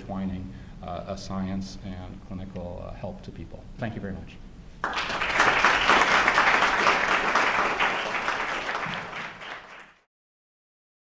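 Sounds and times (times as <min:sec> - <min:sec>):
audience applauding: 0:04.8 - 0:10.1.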